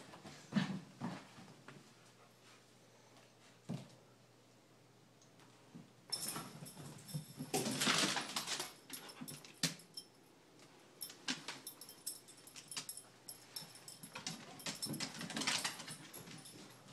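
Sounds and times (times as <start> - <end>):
dogs scuffling: 6.1 - 9.8, 11.0 - 16.9.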